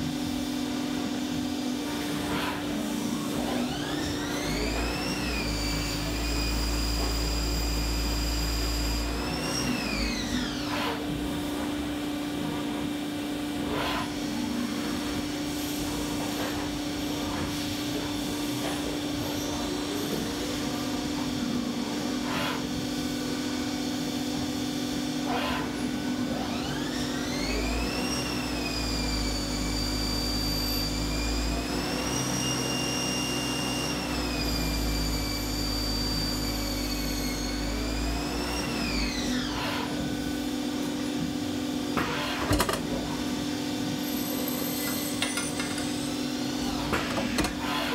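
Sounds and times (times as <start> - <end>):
high machine whine: 0.0 - 47.9
lathe machine hum: 0.0 - 47.9
tool scraping metal part: 42.0 - 43.1, 44.0 - 47.9.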